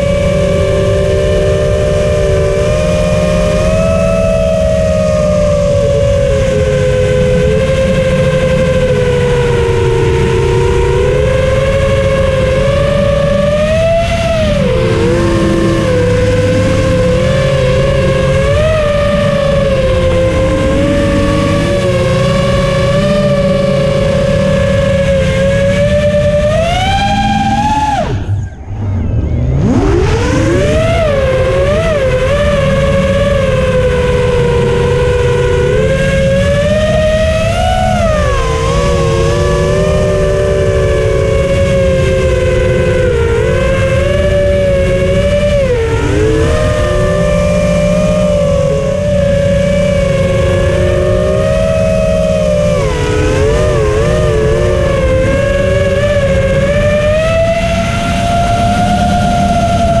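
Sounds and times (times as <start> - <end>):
drone motors whining: 0.0 - 60.0
low rumble: 0.0 - 60.0.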